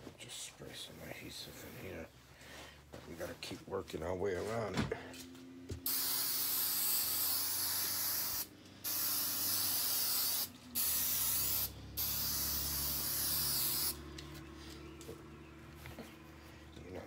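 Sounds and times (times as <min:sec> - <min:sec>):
aerosol can spraying: 0:05.8 - 0:14.0.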